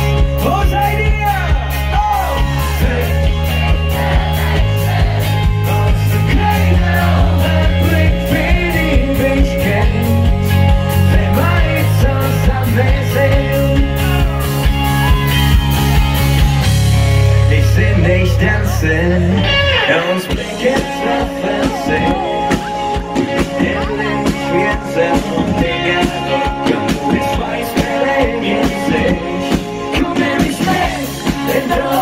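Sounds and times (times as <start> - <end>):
pop-rock band over pa: 0.0 - 32.0
drum beat: 0.4 - 10.1
voices singing: 2.1 - 14.4, 17.6 - 32.0.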